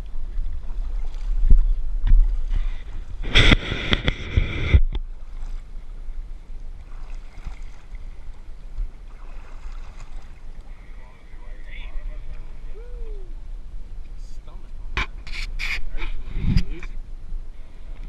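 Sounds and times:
water splashing against boat hull: 0.0s - 11.0s
wind on microphone: 0.0s - 18.0s.

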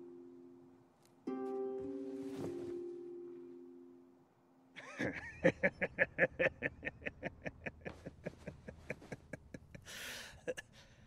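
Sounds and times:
man laughing: 4.8s - 10.7s.

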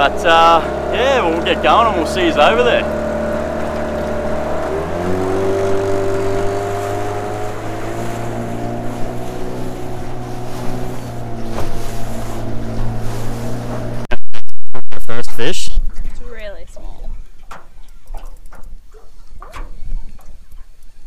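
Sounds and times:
outboard motor running: 0.0s - 14.1s.

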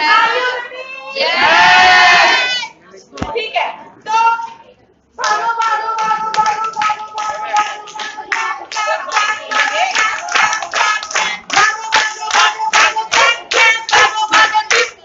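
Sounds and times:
people singing: 0.0s - 2.5s, 5.2s - 15.0s
group clapping in rhythm: 5.2s - 15.0s.

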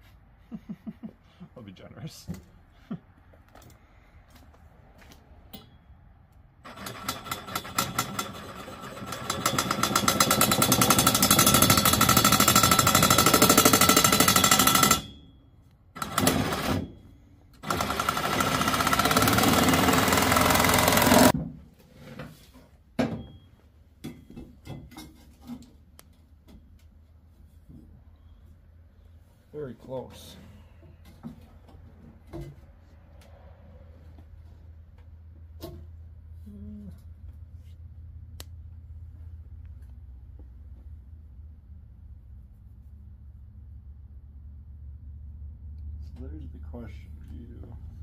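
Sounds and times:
angle grinder cutting steel: 6.7s - 15.1s, 17.6s - 21.3s.

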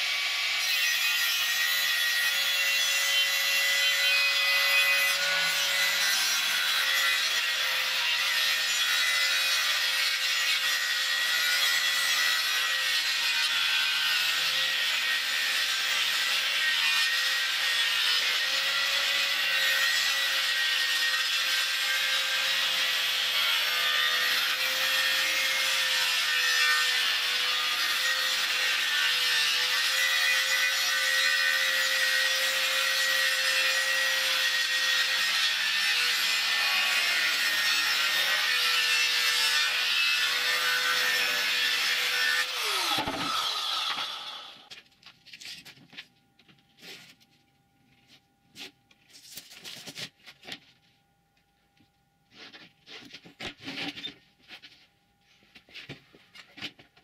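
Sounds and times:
circular saw cutting plywood: 0.0s - 44.7s.

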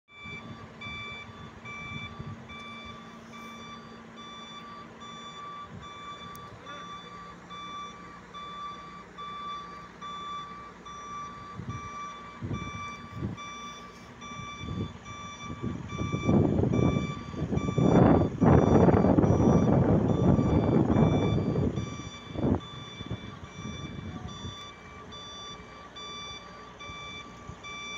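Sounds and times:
crane warning beeper: 0.1s - 27.9s
low engine hum: 0.1s - 27.9s
wind buffeting microphone: 0.2s - 3.0s, 11.5s - 13.5s, 14.2s - 24.6s.

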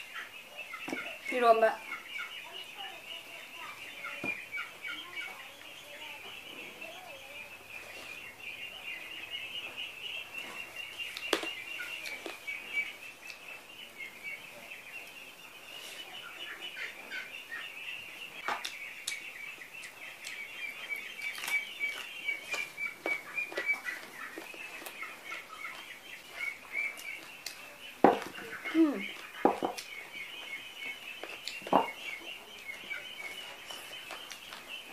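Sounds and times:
ducklings peeping: 0.0s - 34.9s
sharp clicks and smacks of eating: 11.0s - 12.6s, 13.2s - 13.5s, 18.4s - 34.8s.

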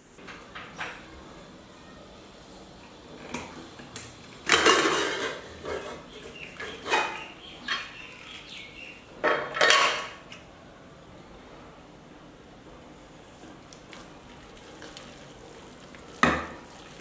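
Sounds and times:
metal lid scraping and clanking: 4.5s - 7.9s.

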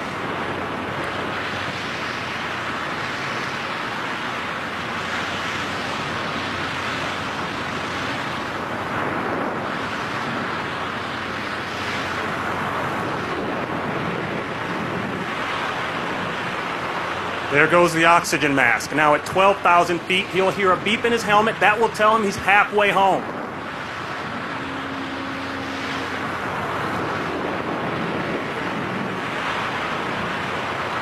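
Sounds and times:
wind rushing over microphone: 0.0s - 31.0s.

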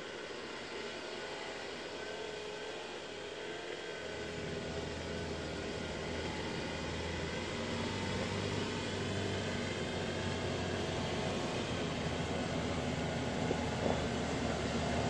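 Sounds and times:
engine running at low revs: 4.0s - 15.0s.

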